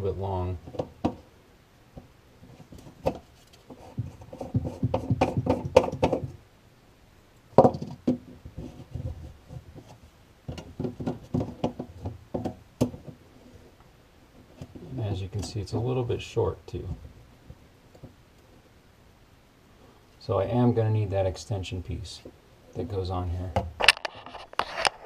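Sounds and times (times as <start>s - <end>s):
plastic pipe pieces knocking: 2.7s - 6.4s, 7.5s - 9.9s, 10.5s - 13.2s.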